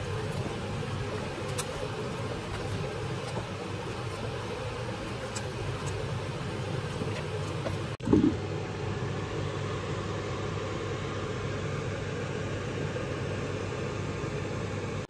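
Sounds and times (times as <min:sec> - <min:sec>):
stove rumble and hiss: 0:00.0 - 0:15.0.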